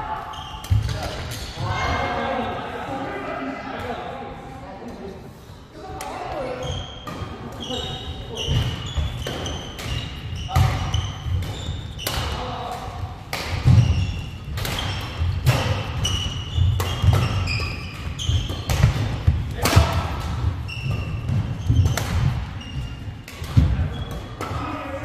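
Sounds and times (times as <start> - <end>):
racket hitting shuttlecock: 8.5 - 22.5
shoes squeaking on wooden floor: 13.7 - 15.3, 15.9 - 18.6, 20.6 - 23.1.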